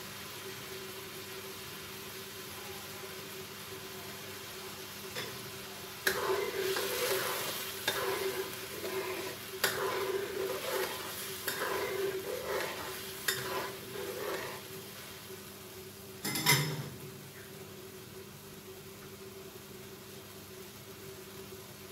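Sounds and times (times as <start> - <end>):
paste sizzling: 5.0 - 15.6
spatula scraping a wok: 6.0 - 15.3.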